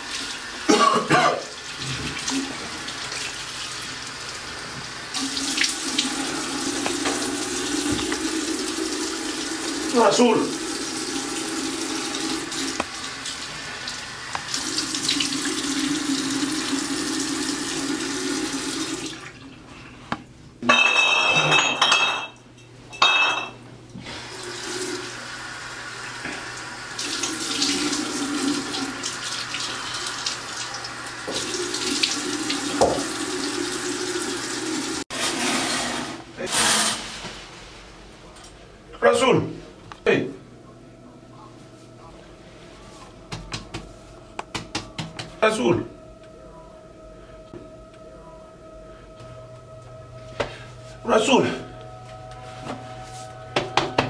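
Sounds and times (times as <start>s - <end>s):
tap water running: 0.0s - 19.6s, 24.0s - 37.0s.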